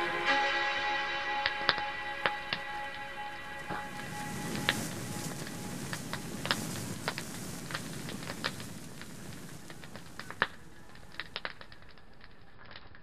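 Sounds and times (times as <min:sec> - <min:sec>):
campfire crackling and popping: 0:01.5 - 0:13.0
low rush of burning: 0:02.2 - 0:12.4.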